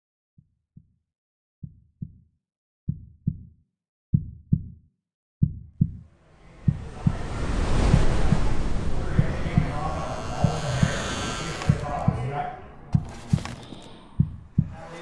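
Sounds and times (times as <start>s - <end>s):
heartbeat thumps: 1.6s - 2.3s, 2.9s - 4.8s, 5.4s - 14.9s
rising swell of noise: 6.2s - 11.9s.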